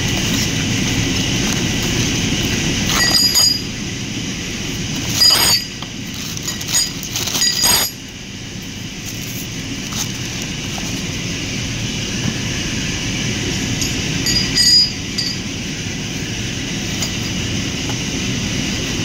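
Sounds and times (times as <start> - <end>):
steel sprockets clinking: 2.9 - 3.7, 5.0 - 8.0, 13.8 - 15.5.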